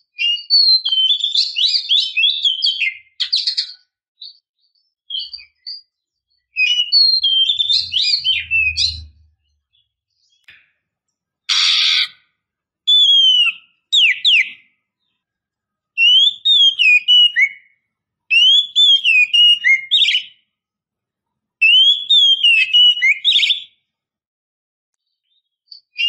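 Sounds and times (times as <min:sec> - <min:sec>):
bird whistled notes: 0:06.6 - 0:09.3, 0:11.5 - 0:12.2, 0:12.9 - 0:14.6
bird harsh call note: 0:11.5 - 0:12.2.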